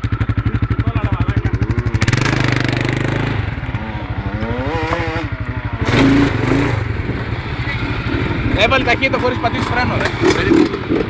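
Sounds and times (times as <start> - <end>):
off-road vehicle engine revving: 0.0 - 11.0.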